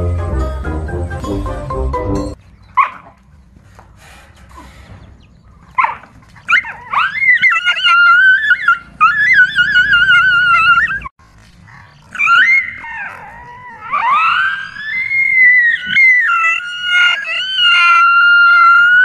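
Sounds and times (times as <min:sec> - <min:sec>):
dog screaming: 0:05.8 - 0:11.1, 0:12.0 - 0:19.0.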